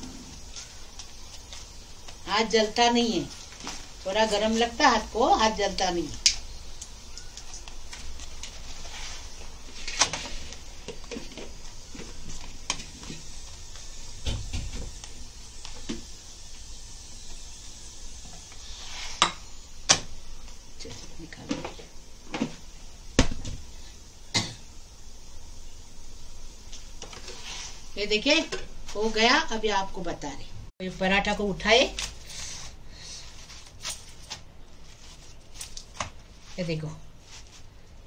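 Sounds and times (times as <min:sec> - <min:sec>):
flatbread sizzling in a frying pan: 0:00.0 - 0:30.4.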